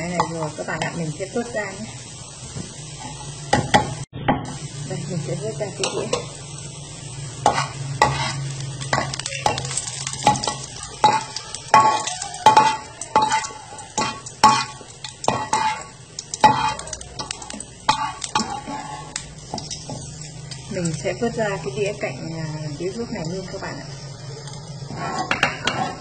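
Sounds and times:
oil sizzling: 0:00.0 - 0:26.0
spatula scraping frying pan: 0:07.3 - 0:20.9, 0:24.4 - 0:26.0.

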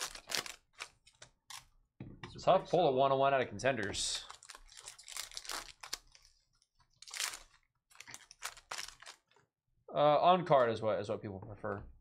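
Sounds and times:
foil wrapper crinkling: 0:00.0 - 0:01.6, 0:04.2 - 0:09.4.

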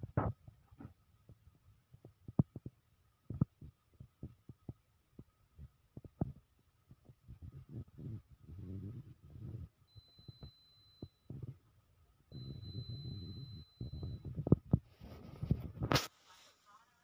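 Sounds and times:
faint steady high tone: 0:08.6 - 0:11.6, 0:12.2 - 0:14.6.

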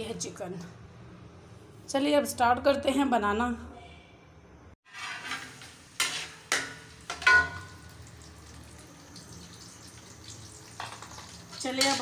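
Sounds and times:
onions sizzling in pot: 0:04.8 - 0:12.0
metal spoon clanking on pot: 0:05.1 - 0:07.8, 0:10.7 - 0:12.0.

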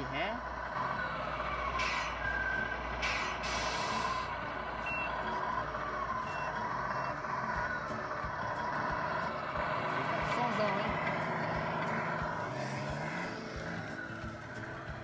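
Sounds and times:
simulated diesel engine: 0:00.0 - 0:15.0
reversing beep: 0:00.8 - 0:05.4, 0:06.2 - 0:08.0.

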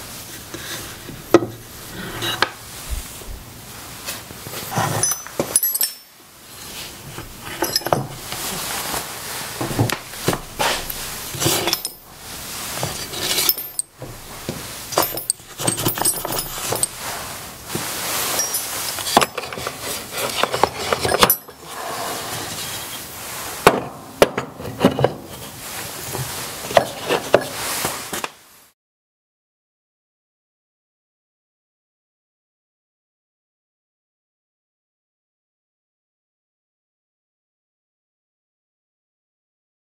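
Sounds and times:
metal tools clinking: 0:04.5 - 0:06.2, 0:07.4 - 0:08.4, 0:11.3 - 0:12.1, 0:12.8 - 0:17.2, 0:18.2 - 0:21.6
steel bits rattling: 0:07.4 - 0:08.2, 0:11.3 - 0:12.1, 0:12.8 - 0:14.0, 0:14.9 - 0:17.0, 0:18.3 - 0:21.6.

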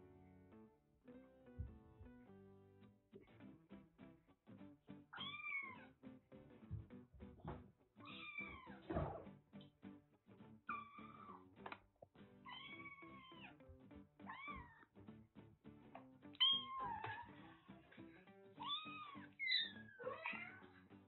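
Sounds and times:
soft background music: 0:00.0 - 0:21.0
kittens mewing: 0:18.6 - 0:20.8.

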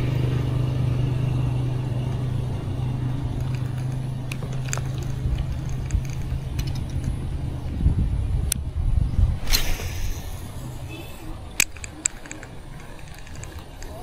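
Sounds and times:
low motor hum: 0:00.0 - 0:14.0
light clicks and ticks: 0:03.4 - 0:07.2, 0:11.6 - 0:14.0.

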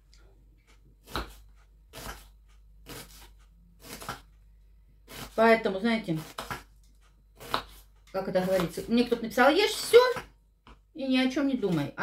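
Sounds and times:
knife slicing onion on wooden board: 0:00.6 - 0:04.4, 0:05.0 - 0:09.2.

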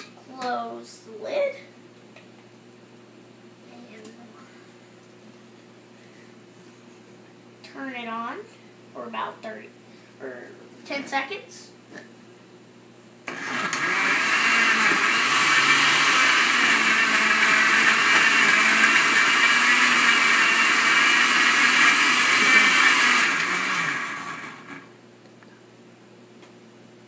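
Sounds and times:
countertop blender running: 0:13.3 - 0:25.0.

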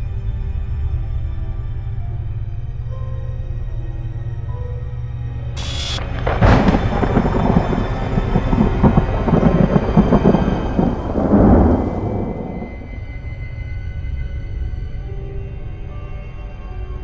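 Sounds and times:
rain: 0:05.6 - 0:13.4
thunder crack and rumble: 0:05.6 - 0:13.4.

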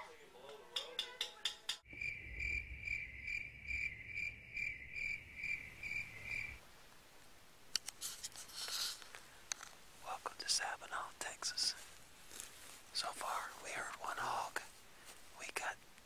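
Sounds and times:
insect chirping: 0:01.9 - 0:06.6
low rumble: 0:01.9 - 0:06.6.

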